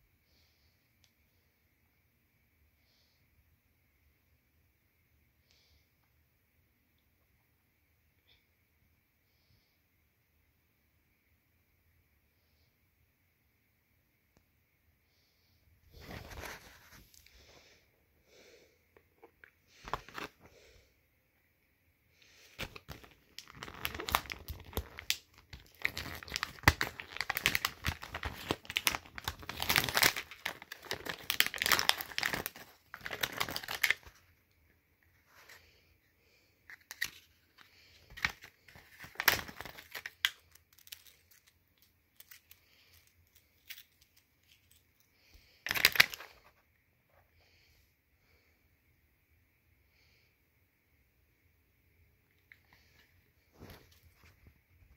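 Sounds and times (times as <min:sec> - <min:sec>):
blister pack tearing and crinkling: 0:22.6 - 0:34.1, 0:36.7 - 0:44.8, 0:45.6 - 0:46.4.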